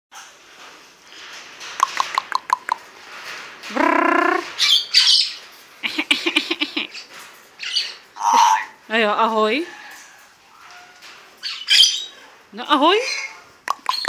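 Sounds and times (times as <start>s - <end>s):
parrot squawks and screeches: 3.7s - 5.4s, 7.0s - 8.8s, 9.7s - 12.2s
parrot stuttering call: 8.2s - 8.8s
parrot clicks: 13.7s - 14.0s.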